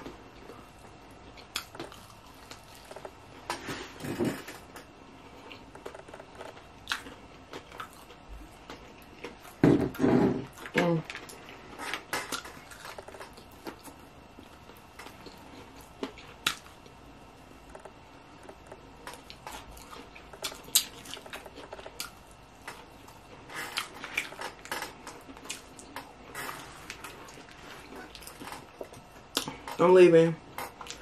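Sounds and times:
chewing fried chicken: 0:00.0 - 0:03.5, 0:05.3 - 0:09.6, 0:18.4 - 0:29.8.

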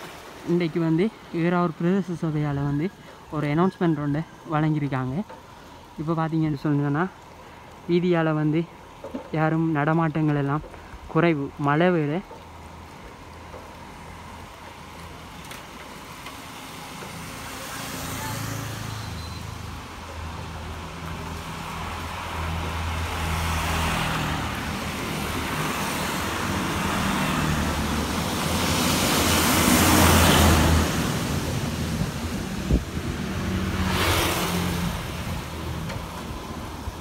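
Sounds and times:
traffic engine drone: 0:00.0 - 0:37.0
tyre hiss on wet road: 0:05.4 - 0:06.0, 0:07.1 - 0:08.0, 0:12.4 - 0:37.0.

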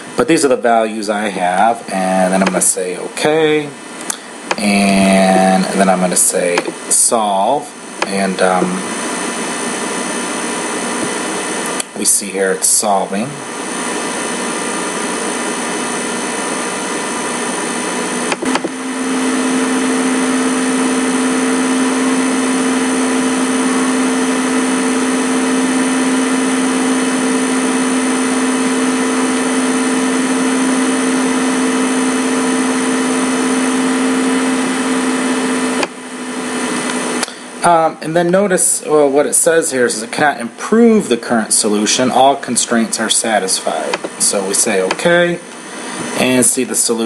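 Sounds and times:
computer fan hum: 0:00.0 - 0:47.0.

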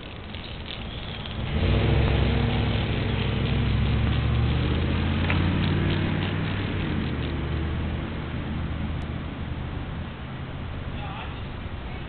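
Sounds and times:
engine humming: 0:00.0 - 0:12.0.

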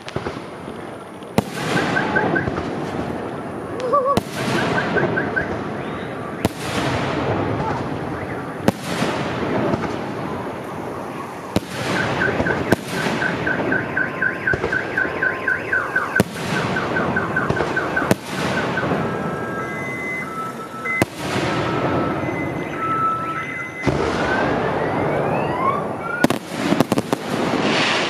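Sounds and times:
fireworks bangs: 0:00.0 - 0:28.0
fireworks crackling: 0:00.0 - 0:28.0
car alarm chirping: 0:01.4 - 0:02.6, 0:04.2 - 0:06.6, 0:07.8 - 0:26.5.

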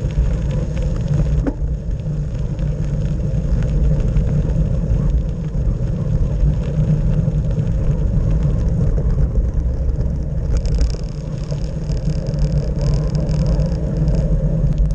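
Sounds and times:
tyre vibration rumble: 0:00.0 - 0:14.9
wind buffeting microphone: 0:00.0 - 0:14.9.

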